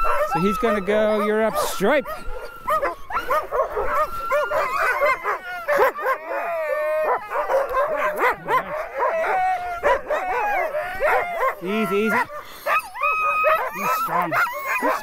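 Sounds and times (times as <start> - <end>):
sled dogs barking and howling: 0.0 - 15.0.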